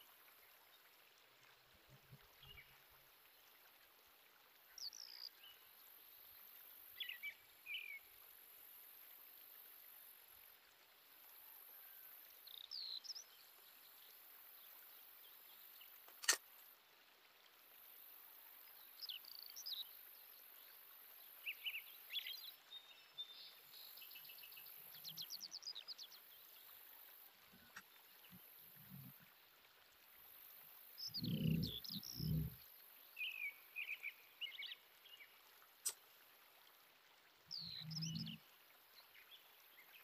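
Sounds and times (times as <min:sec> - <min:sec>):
sharp click: 0:16.1 - 0:16.4
faint bird chirps: 0:31.0 - 0:36.0, 0:37.5 - 0:38.4.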